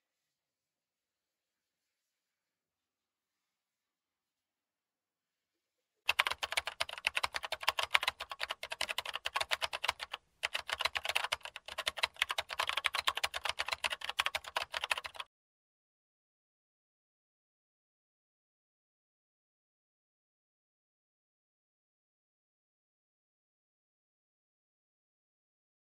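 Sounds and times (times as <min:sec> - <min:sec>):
keyboard key clicks: 0:06.1 - 0:15.2.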